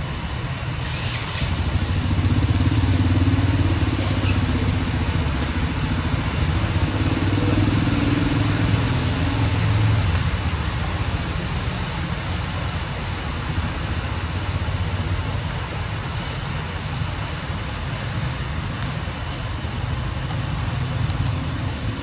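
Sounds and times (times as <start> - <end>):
steady outdoor hiss: 0.0 - 22.0
motorcycle engine at low revs: 0.5 - 11.6.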